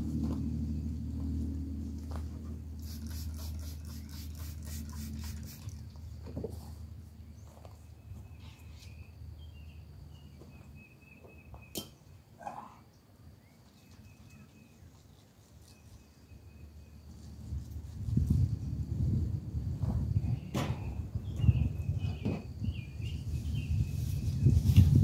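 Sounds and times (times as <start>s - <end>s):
low steady rumble: 0.0s - 8.0s, 16.5s - 23.6s.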